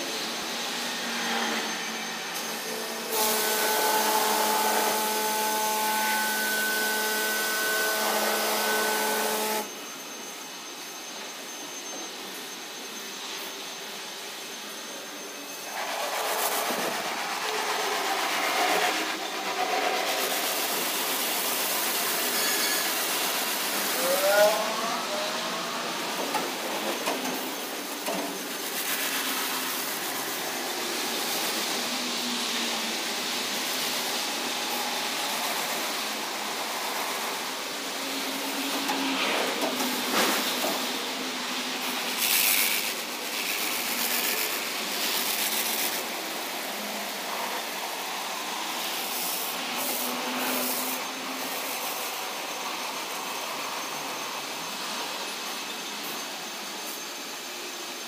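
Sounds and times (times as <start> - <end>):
rotating car wash brushes: 15.6 - 54.1
water spray hiss: 26.0 - 38.6, 39.7 - 55.2.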